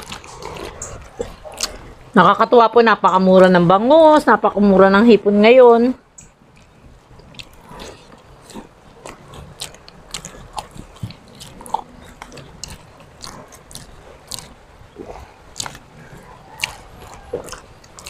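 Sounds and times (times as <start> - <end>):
chewing and lip smacks: 0.0 - 2.2, 6.1 - 18.0.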